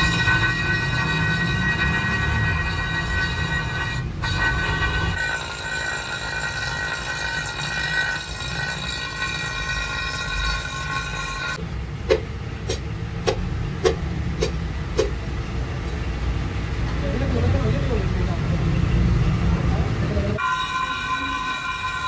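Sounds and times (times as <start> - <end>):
angle grinder grinding metal: 0.0 - 11.6, 20.4 - 22.0.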